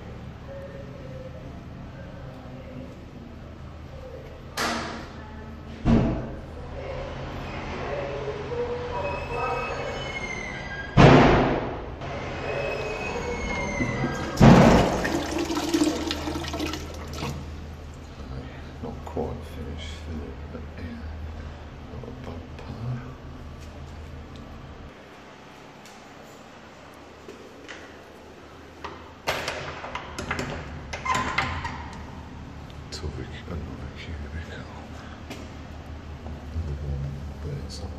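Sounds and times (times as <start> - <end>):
toilet flushing: 12.1 - 17.8
door clattering and knocking: 29.2 - 31.8.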